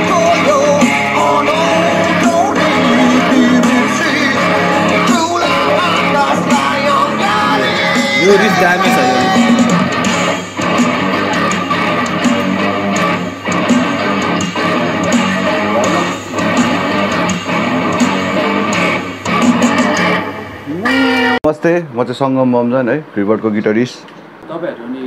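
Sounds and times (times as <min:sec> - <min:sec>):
person singing: 0:00.0 - 0:10.0
rock band playing: 0:00.0 - 0:21.4.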